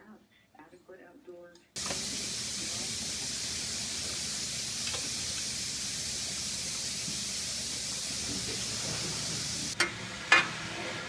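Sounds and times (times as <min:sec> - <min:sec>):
steady hiss: 0:01.8 - 0:09.8.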